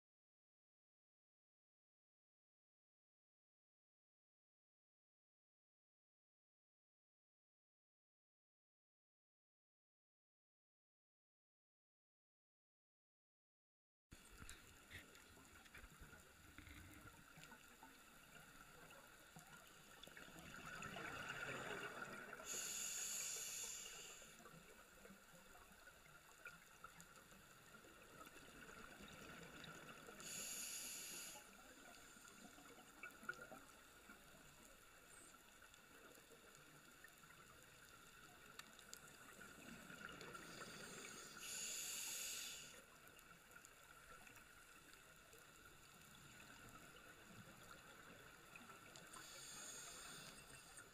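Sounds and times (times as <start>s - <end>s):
faint steady hum: 14.2s - 50.9s
diver breathing through regulator: 22.4s - 24.4s, 30.2s - 31.5s, 40.4s - 42.8s, 49.2s - 50.7s.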